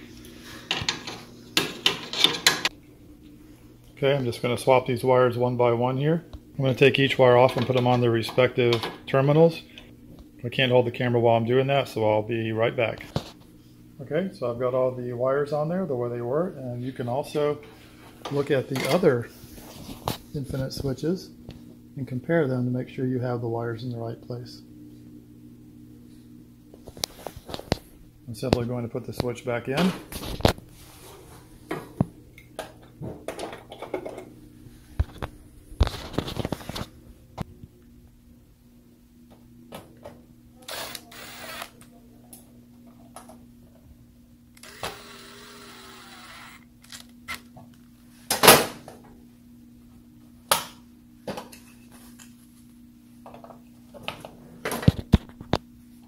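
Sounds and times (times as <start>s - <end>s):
faint low hum: 2.8s - 56.0s.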